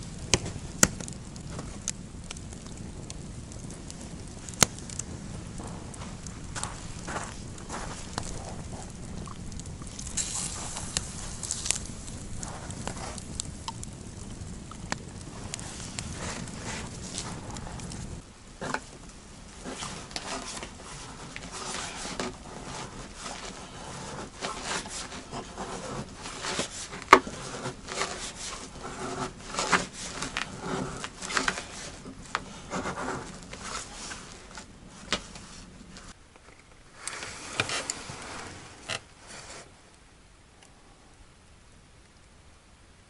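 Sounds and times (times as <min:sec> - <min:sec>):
plastic bags rustling: 0:19.6 - 0:36.2.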